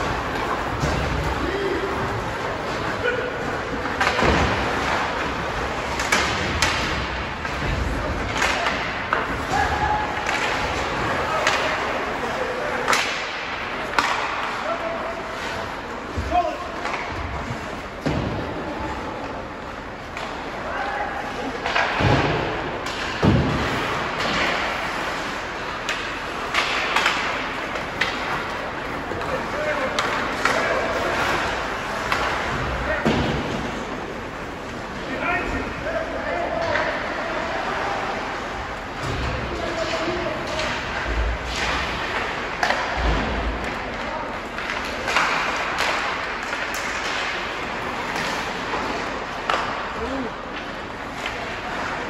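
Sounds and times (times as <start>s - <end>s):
thud against rink boards: 0.0s - 3.1s, 3.7s - 11.9s, 16.1s - 18.6s, 21.6s - 34.0s, 39.0s - 50.0s
murmur of crowd and players: 0.0s - 52.0s
stick and puck clacks: 3.7s - 12.0s, 12.8s - 14.7s, 16.7s - 18.2s, 21.5s - 35.0s, 39.0s - 52.0s.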